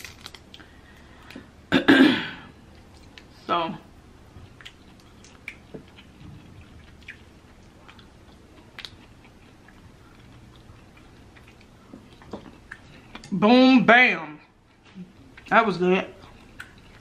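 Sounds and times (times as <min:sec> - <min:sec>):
quiet chewing: 0:02.6 - 0:03.4, 0:04.2 - 0:13.4, 0:14.4 - 0:17.0.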